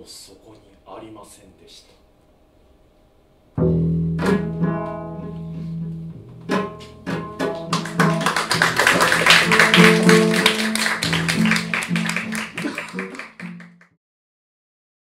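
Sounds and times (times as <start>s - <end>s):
double bass plucked notes: 3.6s - 8.2s.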